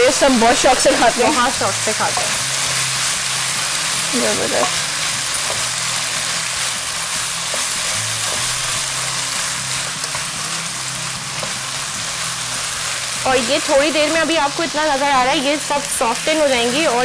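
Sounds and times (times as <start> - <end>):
vegetables sizzling in a wok: 0.0 - 17.0.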